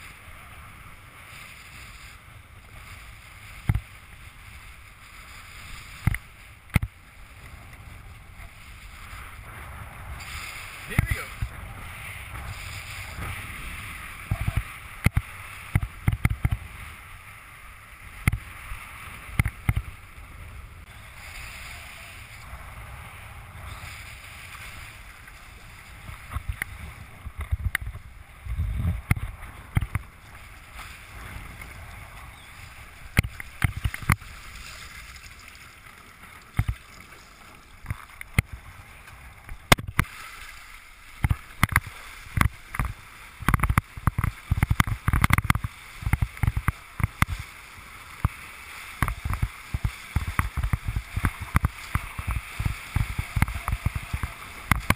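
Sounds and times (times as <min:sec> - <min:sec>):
wind rumbling on microphone: 0:00.0 - 0:54.9
water splashing against board: 0:28.8 - 0:54.9.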